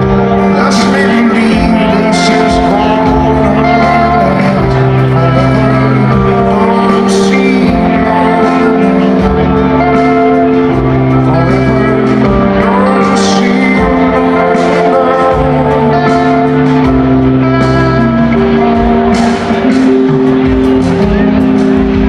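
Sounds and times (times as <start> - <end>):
bass line: 0.0 - 22.0
drums: 0.0 - 22.0
electric guitar: 0.0 - 22.0
keyboards: 0.0 - 22.0
rock band playing live: 0.0 - 22.0.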